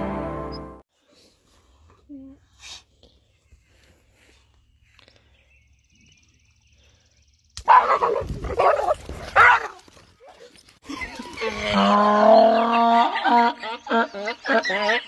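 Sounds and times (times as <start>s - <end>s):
dogs yelping and barking: 7.7s - 15.0s.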